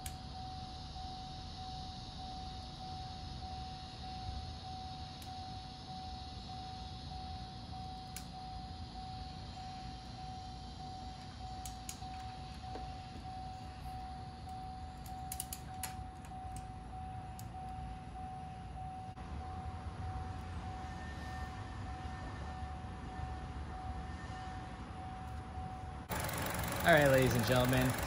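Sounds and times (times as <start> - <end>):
faint steady tone: 0.0 - 28.0
torque wrench clicks: 15.0 - 16.7.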